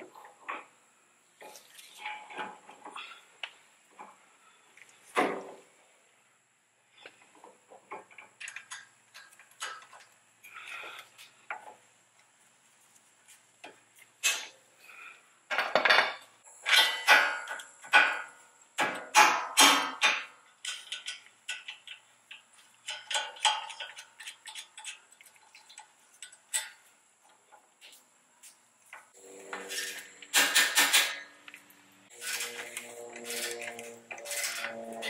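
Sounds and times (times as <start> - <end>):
hand tools clanking on metal: 15.5 - 26.9, 29.5 - 35.0.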